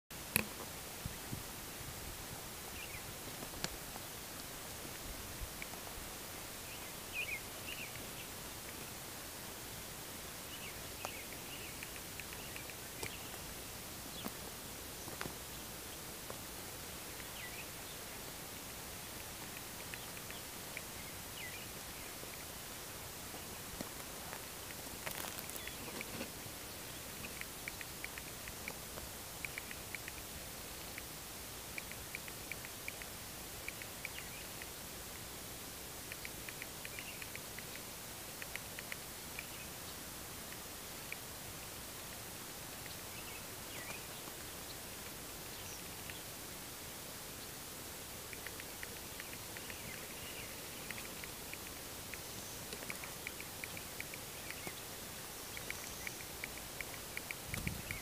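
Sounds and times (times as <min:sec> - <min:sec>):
steady background hiss: 0:00.1 - 0:58.0
soft clicks: 0:00.3 - 0:00.7, 0:10.5 - 0:13.4, 0:18.7 - 0:22.5, 0:23.4 - 0:31.1, 0:31.7 - 0:34.8, 0:36.0 - 0:39.7, 0:45.8 - 0:46.3, 0:48.2 - 0:54.9, 0:55.5 - 0:58.0
bird chirps: 0:10.5 - 0:13.4, 0:48.4 - 0:56.4.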